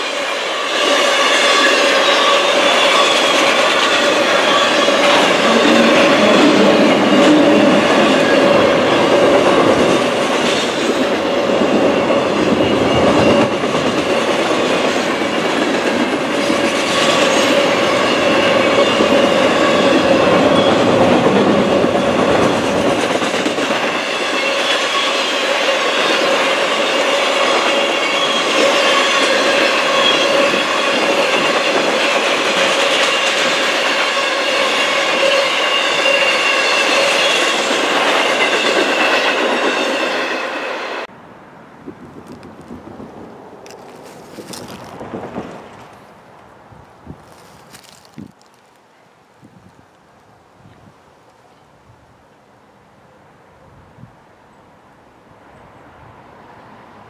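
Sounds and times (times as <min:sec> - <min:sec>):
high-pitched wheel squeal: 0:00.0 - 0:15.4, 0:16.4 - 0:22.8, 0:23.8 - 0:41.1
train wheels rumbling on rail: 0:00.0 - 0:41.2, 0:42.0 - 0:48.8.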